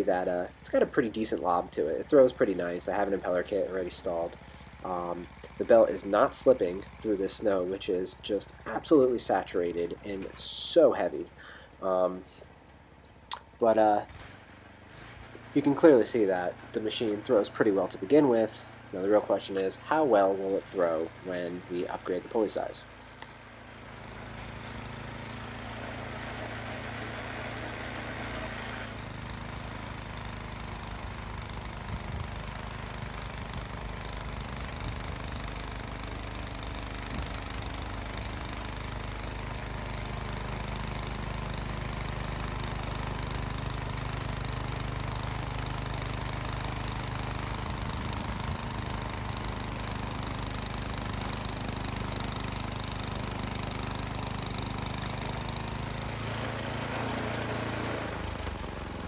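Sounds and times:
snowblower running: 0.0 - 59.0.

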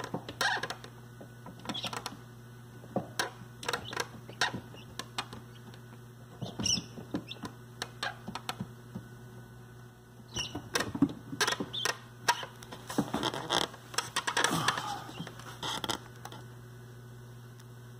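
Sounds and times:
steady low hum: 0.0 - 17.9
chicks scratching and pecking: 1.6 - 2.2, 10.3 - 12.5
chicks peeping: 1.7 - 2.1, 6.4 - 8.3, 10.3 - 10.6, 11.7 - 12.5.

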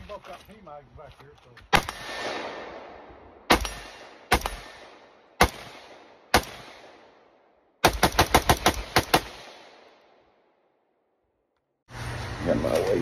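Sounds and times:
rifle shots echoing: 1.7 - 10.5.

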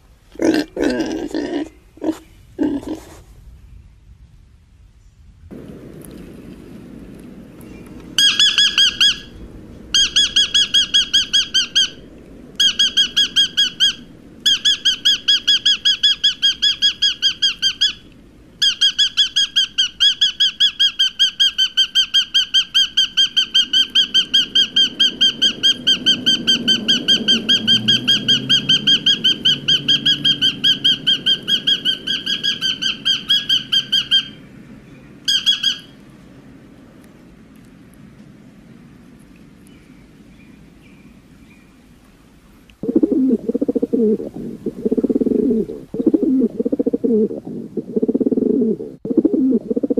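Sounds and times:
lovebird chirping: 7.6 - 36.0, 42.8 - 49.9.

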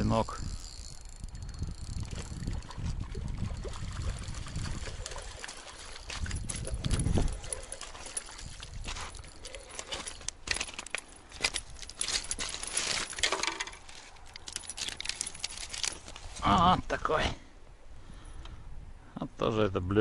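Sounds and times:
pebbles clicking and clattering: 4.5 - 16.1.

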